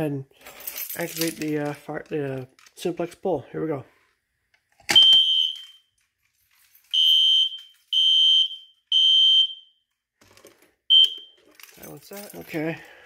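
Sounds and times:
fire alarm horn blasts: 5.0s - 5.8s, 7.0s - 9.8s.

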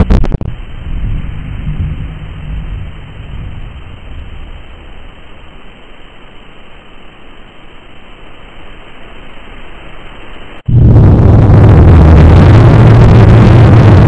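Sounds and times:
low rumble: 0.0s - 6.0s, 10.7s - 14.0s
steady hissing: 0.5s - 14.0s.

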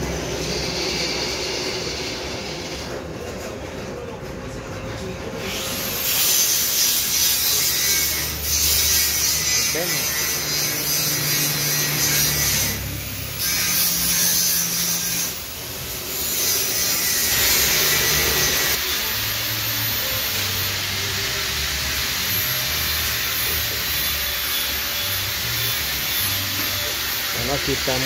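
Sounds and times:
whirring hissing machine: 0.0s - 3.2s, 5.4s - 28.0s.

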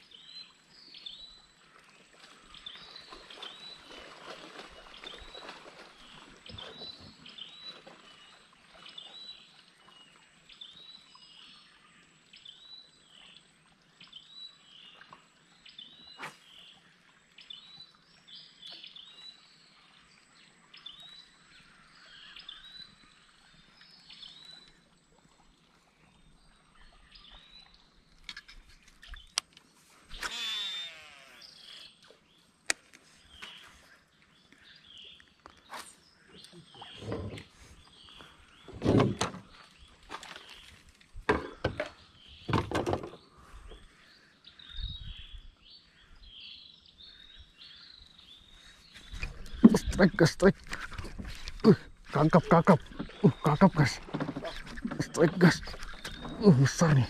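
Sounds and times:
whir: 30.1s - 31.8s
rising and falling animal call: 30.2s - 31.8s.

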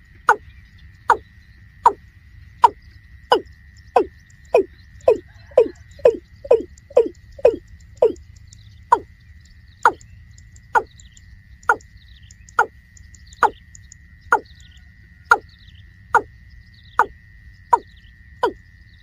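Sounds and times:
faint steady high tone: 0.0s - 19.0s
bird calling with falling notes: 2.6s - 8.2s.

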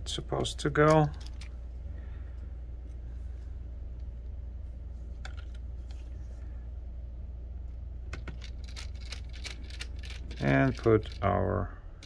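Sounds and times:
steady low hum: 0.0s - 12.0s
screwdriver and metal parts clicking: 8.3s - 11.4s.

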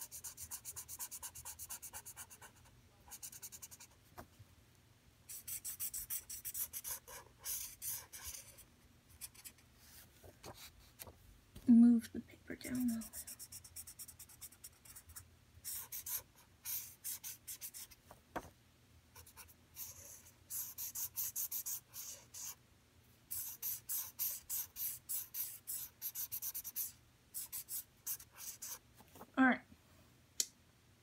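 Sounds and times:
marker scratching on paper: 0.0s - 4.0s, 5.3s - 11.1s, 12.6s - 18.0s, 19.2s - 22.6s, 23.3s - 28.8s.

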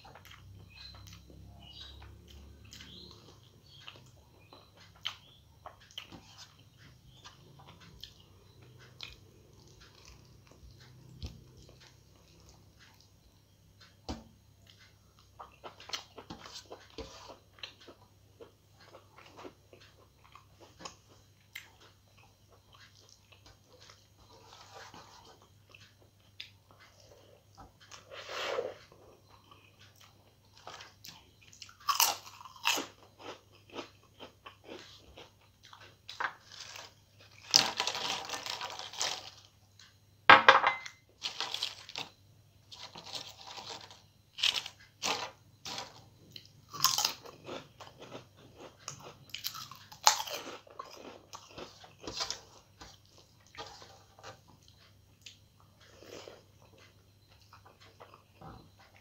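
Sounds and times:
soft chewing: 0.0s - 40.2s, 41.1s - 59.0s
crunching fried crisps: 31.6s - 39.6s, 41.2s - 52.9s.

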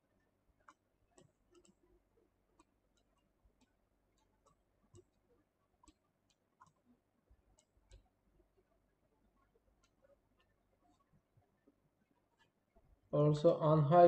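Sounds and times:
computer mouse clicks: 0.6s - 1.9s, 2.6s - 8.1s.

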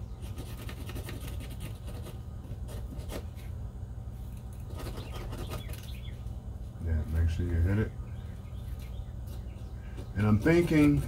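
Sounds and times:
steady low hum: 0.0s - 11.0s
fingers rubbing and scraping: 0.2s - 3.5s, 4.3s - 6.1s, 10.2s - 11.0s.

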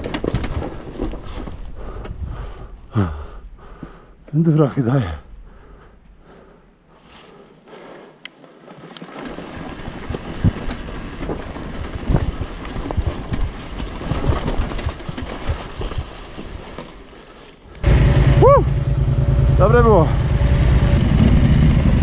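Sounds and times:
knocks and rattles: 0.0s - 1.5s
motorcycle engine rumble: 17.7s - 22.0s.

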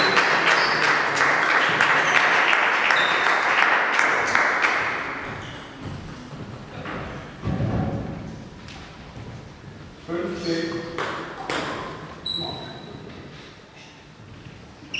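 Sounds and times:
spectators applauding: 0.0s - 5.2s.

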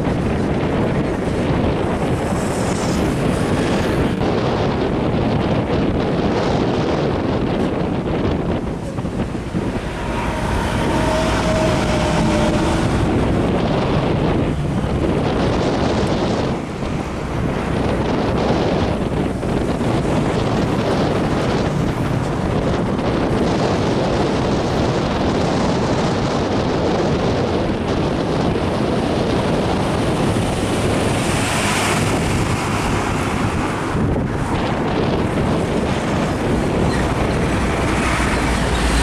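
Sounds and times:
heavy trucks rumbling past: 0.0s - 39.0s
wind buffeting microphone: 0.0s - 39.0s
passing truck hiss: 8.6s - 13.6s.

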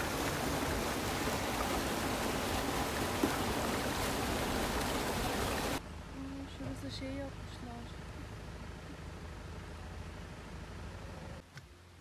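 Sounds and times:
waterfall cascading over rocks: 0.0s - 5.8s.

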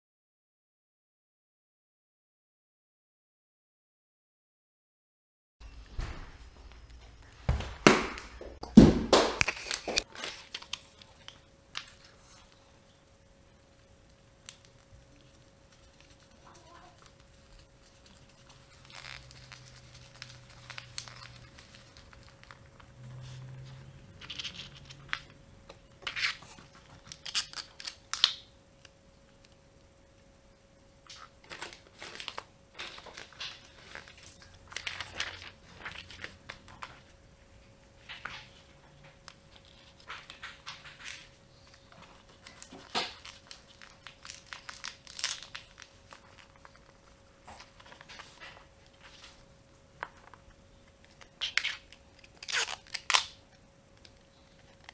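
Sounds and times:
paper rustling and crinkling: 9.4s - 12.6s, 14.4s - 25.4s, 31.1s - 37.2s, 38.0s - 53.2s.

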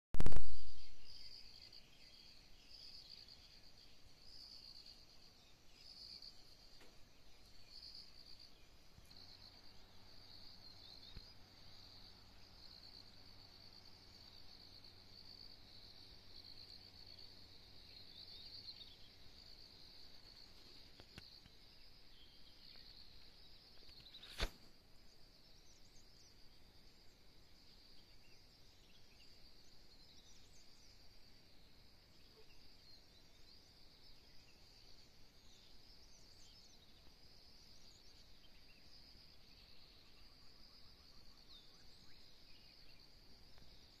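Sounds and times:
sharp click: 0.2s - 0.8s, 23.8s - 24.7s
high insect trill: 0.2s - 44.0s.

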